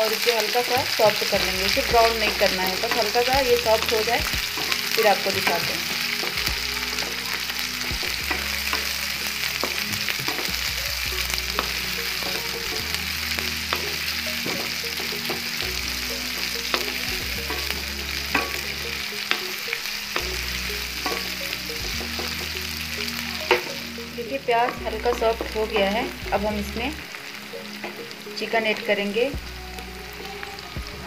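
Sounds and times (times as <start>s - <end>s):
onions sizzling in hot oil: 0.0s - 31.0s
wooden spatula scraping a pan: 0.9s - 19.6s.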